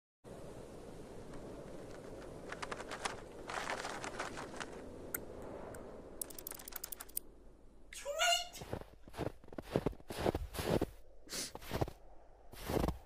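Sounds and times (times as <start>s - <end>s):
crackling clicks: 1.2s - 7.3s.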